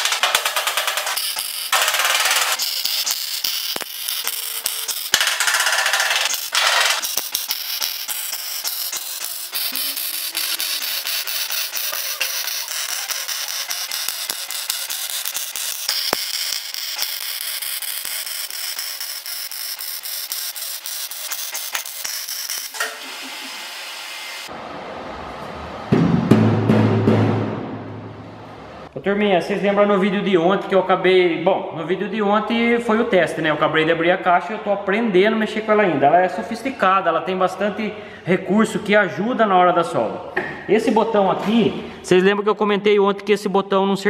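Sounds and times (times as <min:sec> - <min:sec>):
welder crackling: 0:00.0 - 0:24.5.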